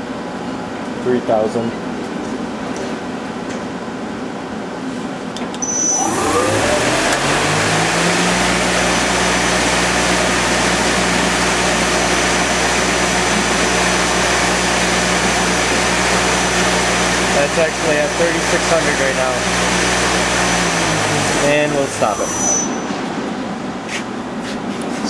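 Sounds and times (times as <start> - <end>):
thin high whistle: 5.6 - 6.1, 22.0 - 22.9
machine spindle whirring: 5.6 - 23.2.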